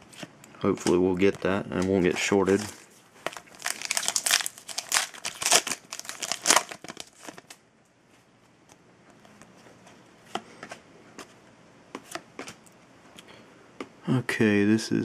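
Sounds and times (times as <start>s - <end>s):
foil wrapper crinkling: 2.1s - 7.6s.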